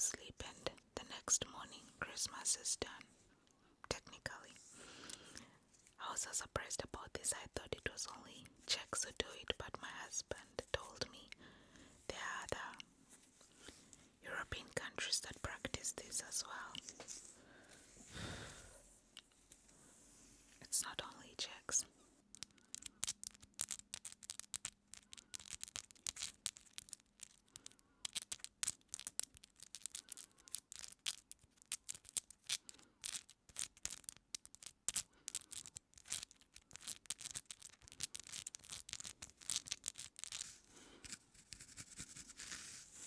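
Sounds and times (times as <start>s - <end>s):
nails crackling through hair: 20.7s - 42.7s
comb scratching through hair: 38.2s - 43.0s.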